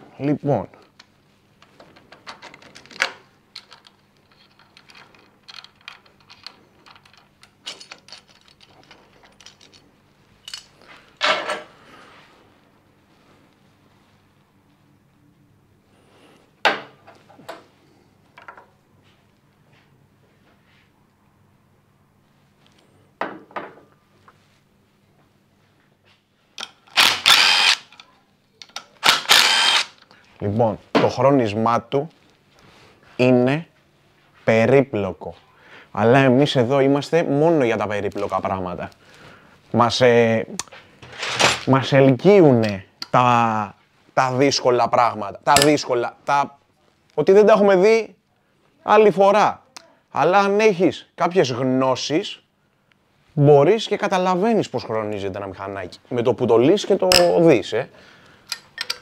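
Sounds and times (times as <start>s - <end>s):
metal parts and tools clinking: 2.0s - 11.7s, 41.0s - 41.7s, 57.1s - 57.4s, 58.5s - 59.0s
power driver whirring: 26.9s - 27.9s, 29.0s - 30.0s.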